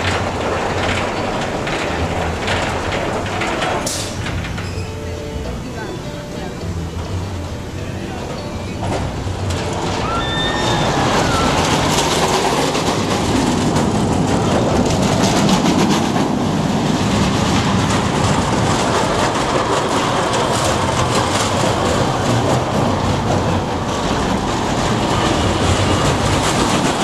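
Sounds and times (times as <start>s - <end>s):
roller coaster rumbling and rattling: 0.0s - 27.0s.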